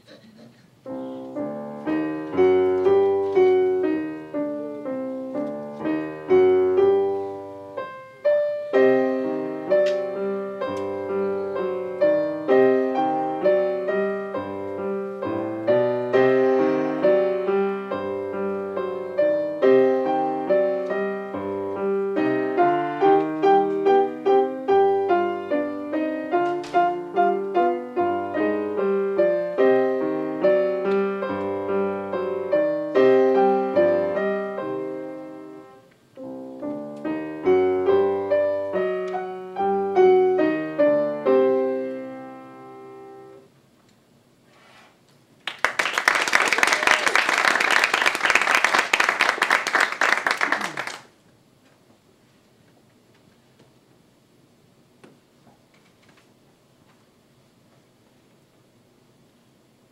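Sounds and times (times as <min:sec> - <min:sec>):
piano playing: 0:00.8 - 0:43.5.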